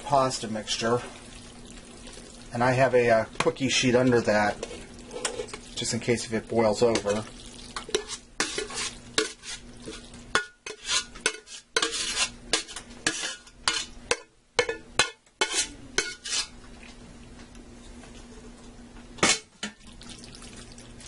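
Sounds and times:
spoon scraping metal pot: 4.5s - 5.6s, 7.8s - 14.0s, 15.4s - 16.6s.

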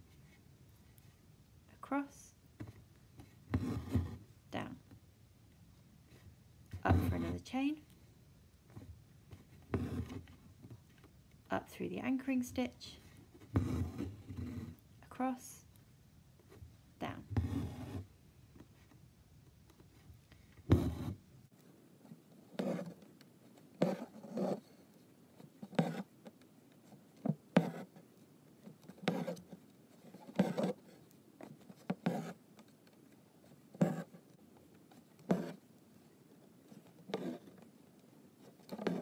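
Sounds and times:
needle and thread rasping through fabric: 12.6s - 14.8s, 17.1s - 18.1s, 19.8s - 21.2s, 22.1s - 39.0s.

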